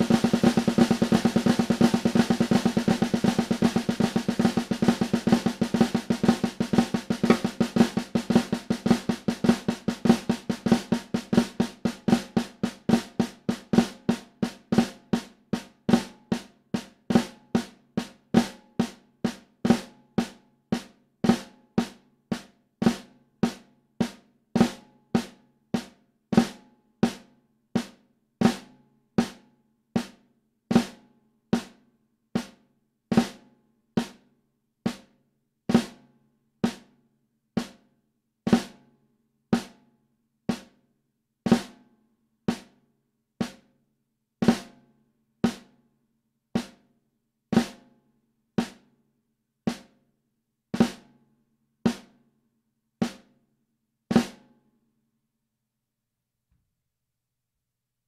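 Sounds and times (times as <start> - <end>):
snare drum hits: 7.1 - 7.9.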